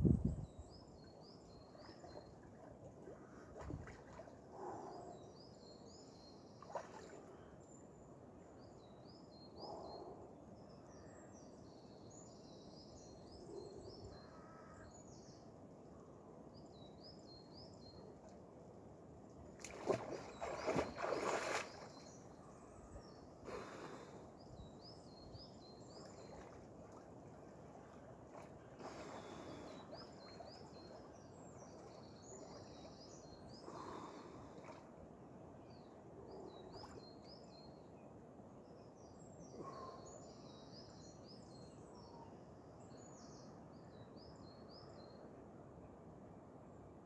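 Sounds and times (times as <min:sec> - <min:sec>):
songbird singing: 0:00.0 - 0:46.1
water splashing around swimmer: 0:19.6 - 0:22.1.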